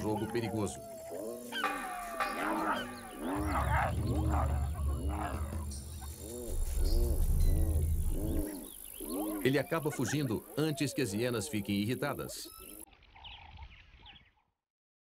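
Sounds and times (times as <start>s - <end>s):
hyenas calling: 0.0s - 12.9s
deep growling rumble: 3.3s - 9.5s.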